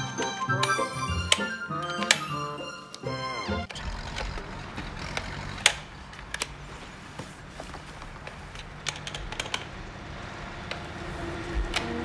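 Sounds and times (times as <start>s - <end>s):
plastic toy clicks and taps: 0.2s - 3.0s, 8.6s - 9.7s.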